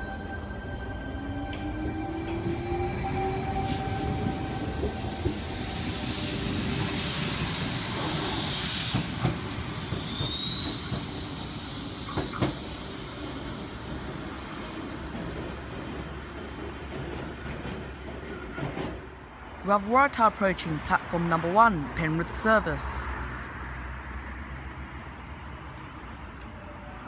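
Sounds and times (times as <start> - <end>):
train wheel and air rush: 1.1 - 19.6
high wheel squeal: 8.9 - 13.3.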